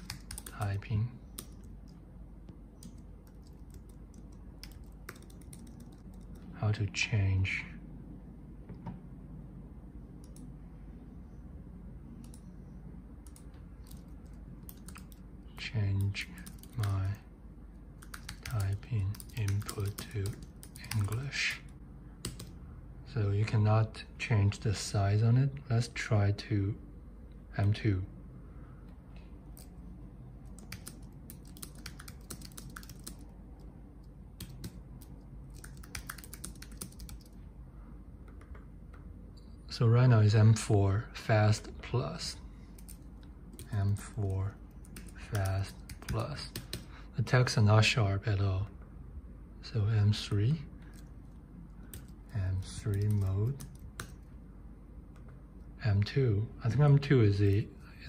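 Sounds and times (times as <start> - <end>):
computer mouse clicking: 0.0 - 0.6, 1.3 - 2.0, 2.8 - 6.5, 10.2 - 10.5, 12.2 - 12.5, 13.2 - 15.2, 18.0 - 21.2, 22.2 - 22.6, 30.5 - 37.4, 38.2 - 39.5, 42.8 - 43.7, 51.9 - 52.2
keyboard typing: 0.0 - 2.0, 2.8 - 6.5, 13.2 - 15.2, 16.0 - 17.2, 18.0 - 21.3, 22.2 - 22.6, 30.4 - 37.4, 38.2 - 39.0, 42.8 - 46.9, 51.9 - 54.2
low steady hum: 0.0 - 58.0.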